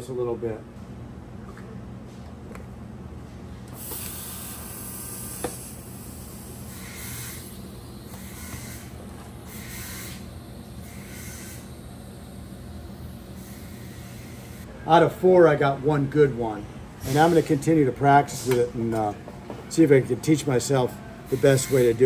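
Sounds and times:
steady low hum: 0:00.0 - 0:22.0
welding arc hiss: 0:03.7 - 0:14.7, 0:17.0 - 0:17.7, 0:21.3 - 0:22.0.

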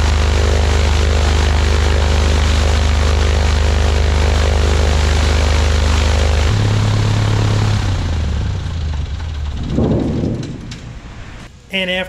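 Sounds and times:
airplane engine and propeller running: 0:00.0 - 0:11.5.

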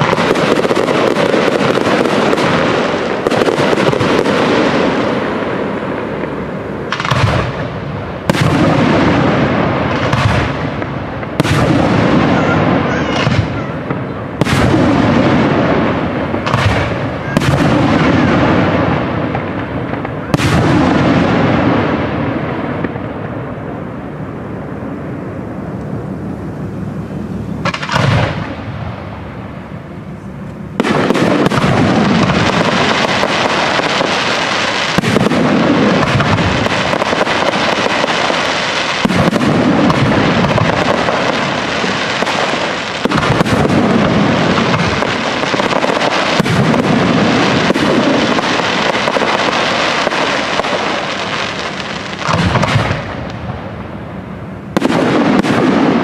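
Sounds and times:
firework shells bursting with echo: 0:00.0 - 0:24.0, 0:27.6 - 0:29.8, 0:30.6 - 0:56.0
continuous fireworks barrage: 0:00.0 - 0:56.0
fireworks crackle: 0:00.0 - 0:56.0.

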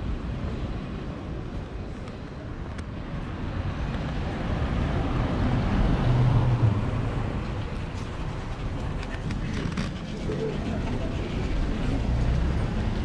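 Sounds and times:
vehicle driving past: 0:09.7 - 0:13.0.

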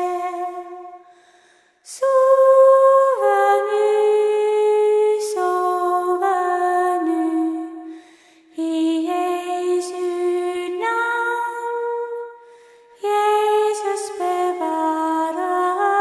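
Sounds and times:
woman singing a lullaby: 0:00.0 - 0:00.8, 0:08.6 - 0:12.0, 0:13.0 - 0:16.0.

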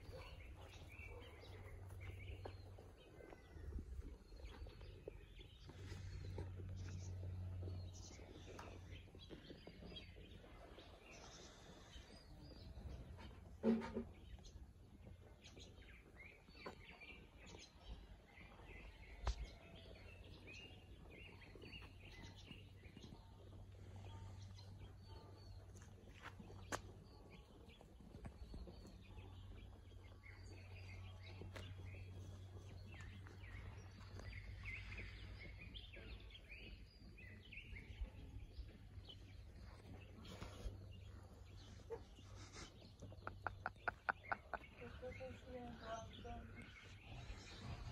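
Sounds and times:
small birds chirping: 0:00.0 - 0:47.9.

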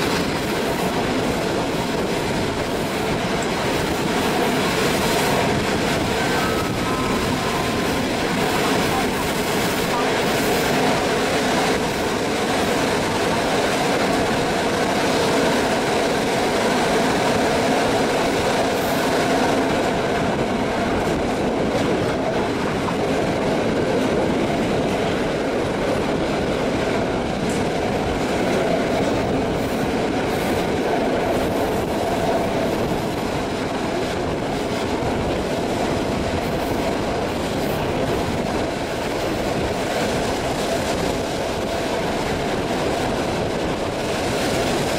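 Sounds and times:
clickety-clack of rails: 0:00.0 - 0:44.9
train wheels rumbling on rails: 0:00.0 - 0:44.9.

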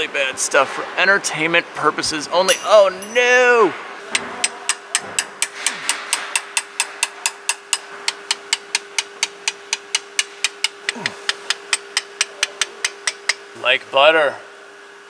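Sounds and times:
hammer tapping steel punch: 0:02.5 - 0:03.5, 0:04.1 - 0:13.4.

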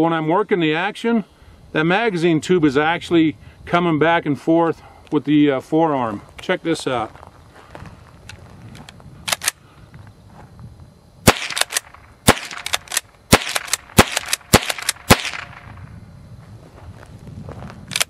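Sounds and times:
rifle shots: 0:11.2 - 0:15.8.

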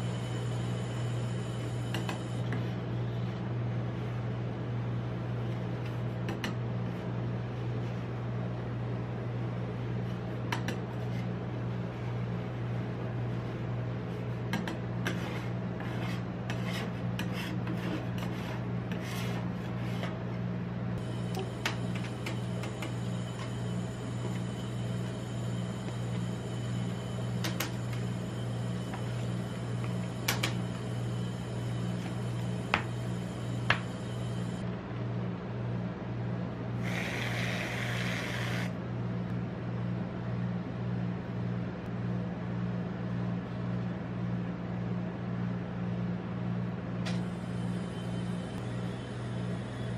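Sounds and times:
steady low hum: 0:00.0 - 0:49.9
aerosol cream hissing: 0:36.8 - 0:38.7.

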